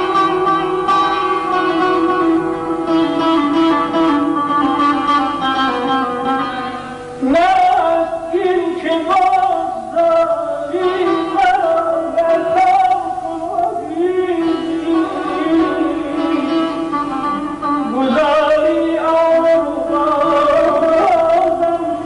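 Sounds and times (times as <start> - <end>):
plucked lute: 0.0 - 22.0
person singing ornamented notes: 7.2 - 22.0.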